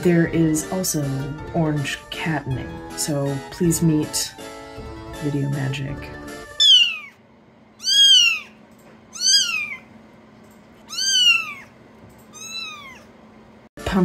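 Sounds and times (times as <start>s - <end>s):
kittens meowing: 6.6s - 7.2s, 7.8s - 9.9s, 10.8s - 13.1s.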